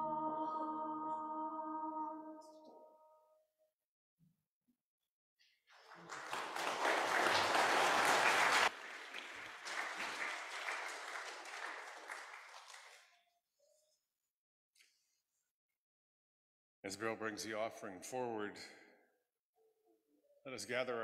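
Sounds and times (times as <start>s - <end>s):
congregation applauding: 5.7s - 13.1s.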